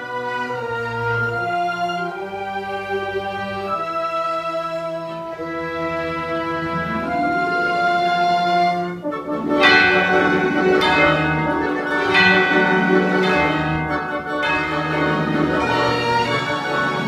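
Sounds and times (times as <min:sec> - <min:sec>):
bowed strings: 0:03.2 - 0:17.0
tubular bells struck: 0:09.4 - 0:17.0.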